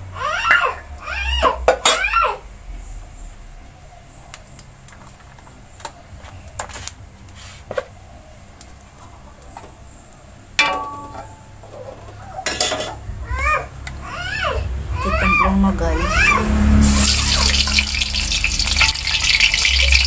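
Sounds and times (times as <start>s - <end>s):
metal spatula clinking on wok: 10.6s - 11.5s.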